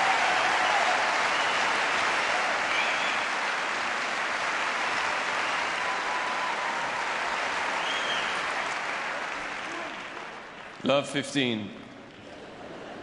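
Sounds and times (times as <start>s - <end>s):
crowd applauding: 0.0s - 11.0s
faint whistle: 7.8s - 8.4s.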